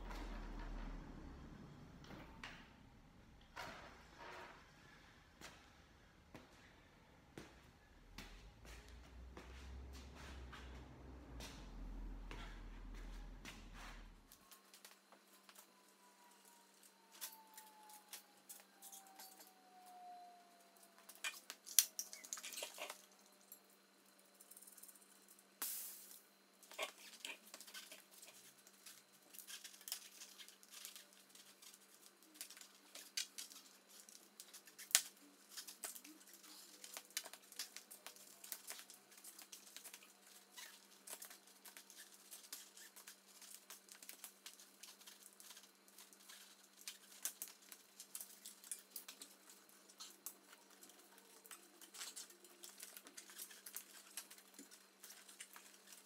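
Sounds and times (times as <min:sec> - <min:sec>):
bicycle tyre being handled: 0:25.8 - 0:56.0.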